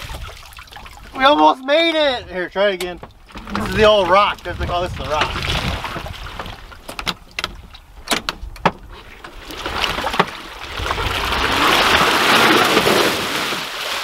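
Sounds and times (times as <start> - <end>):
sharp knocks and splats: 0.0 - 1.2, 2.8 - 14.0
tyres spinning in mud: 9.3 - 14.0.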